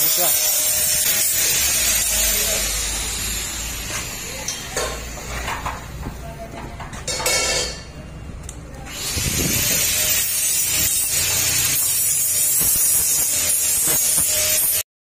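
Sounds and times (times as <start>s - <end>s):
welding arc hissing: 0.0s - 5.5s, 8.9s - 14.8s.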